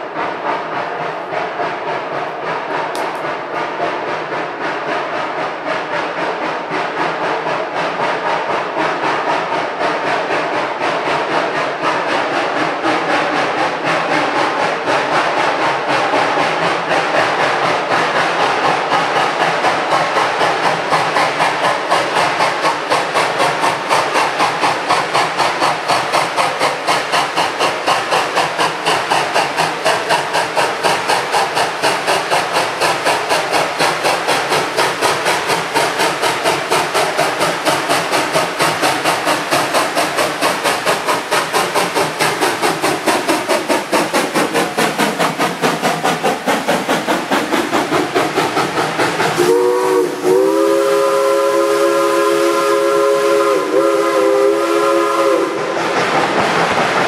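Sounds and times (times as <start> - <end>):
steam locomotive chuffing: 0.0 - 57.0
steam whistle chord: 49.4 - 55.7.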